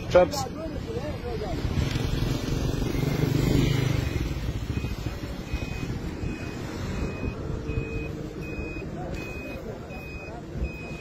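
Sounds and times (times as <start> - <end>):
street and vehicle rumble: 0.0 - 11.0.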